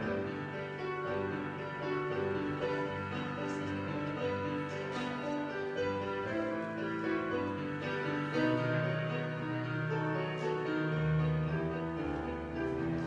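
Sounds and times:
slow keyboard music: 0.0s - 13.0s.

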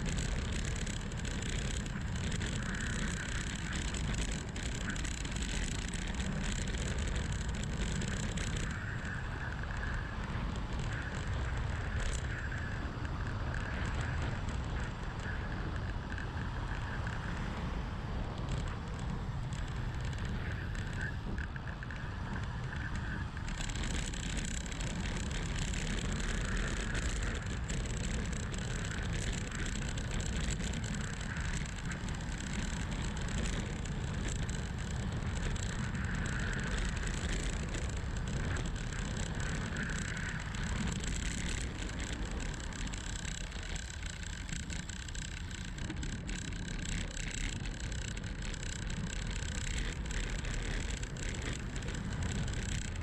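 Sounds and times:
wind rushing over microphone: 0.0s - 53.0s.

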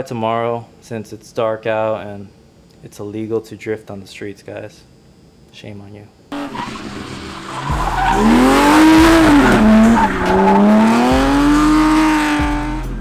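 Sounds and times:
car engine at high revs: 6.3s - 13.0s.

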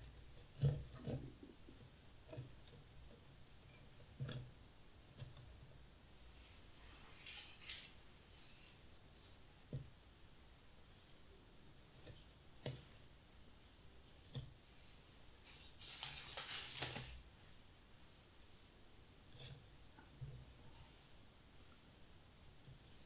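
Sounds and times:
dry grass crinkling: 15.4s - 17.2s
dry grass stems rustling: 15.4s - 17.2s.

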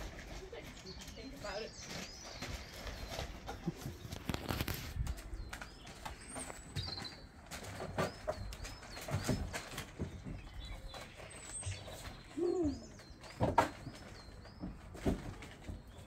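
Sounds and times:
children climbing wooden frame: 0.0s - 16.0s
small birds chirping: 0.0s - 16.0s.

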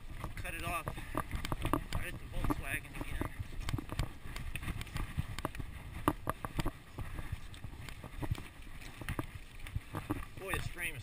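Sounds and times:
tyre and wind rumble: 0.0s - 11.0s
bike clattering over rocks: 0.1s - 7.3s.

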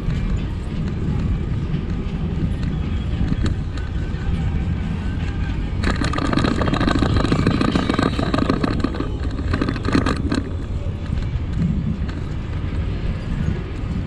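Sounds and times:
wind and tyre rumble: 0.0s - 14.0s
bicycle clattering rattle: 5.8s - 14.0s.

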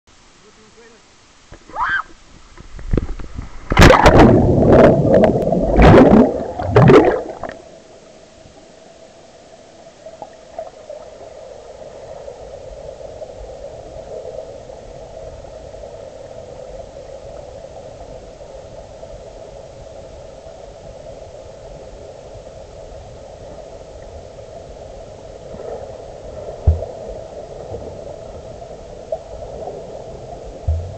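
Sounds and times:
faint hum: 0.1s - 30.9s
muffled underwater rush: 2.4s - 30.9s
water splashing and churning: 2.7s - 7.6s, 29.4s - 30.9s.

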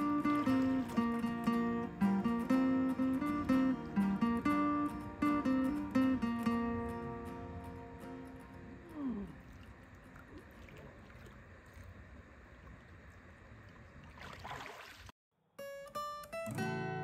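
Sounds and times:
water lapping and sloshing: 0.0s - 1.9s, 9.2s - 15.1s
acoustic guitar music: 0.0s - 10.1s, 15.6s - 17.0s.

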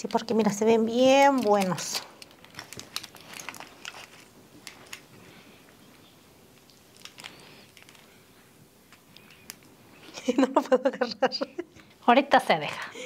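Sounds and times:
food crinkling and bites: 1.2s - 10.1s.

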